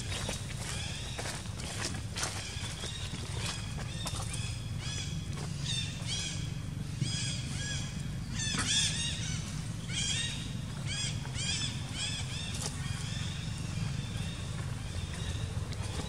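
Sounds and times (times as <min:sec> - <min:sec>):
steady low hum: 0:00.0 - 0:16.0
high chirping animal calls: 0:02.3 - 0:16.0.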